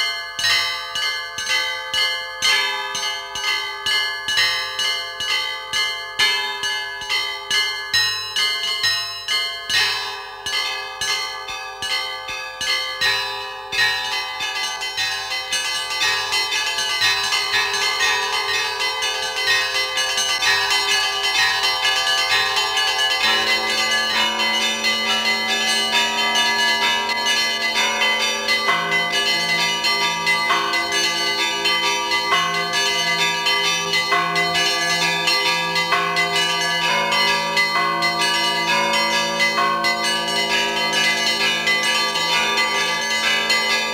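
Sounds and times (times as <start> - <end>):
small bells chiming: 0.0 - 43.9
lower bell ringing: 14.2 - 43.9.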